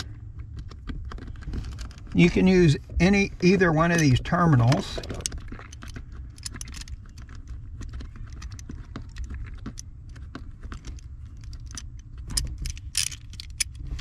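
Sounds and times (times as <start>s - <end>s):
low steady rumble: 0.0s - 14.0s
metallic clicks of small hardware: 10.7s - 14.0s.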